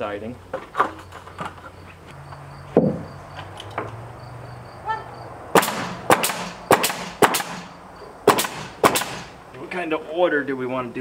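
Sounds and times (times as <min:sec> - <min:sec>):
dull thump: 0:02.7 - 0:03.2
hammer driving nails into wood: 0:05.6 - 0:09.3.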